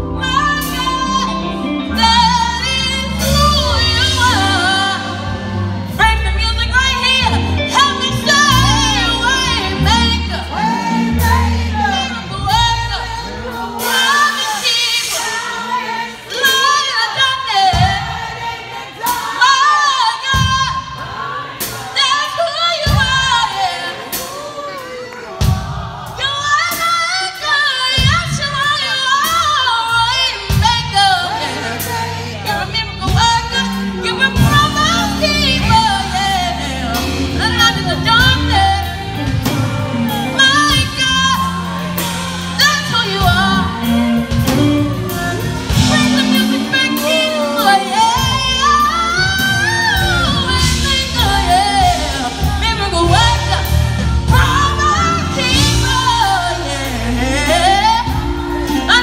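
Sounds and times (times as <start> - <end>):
bass guitar: 0.0 - 14.2, 29.3 - 59.0
drums: 0.0 - 59.0.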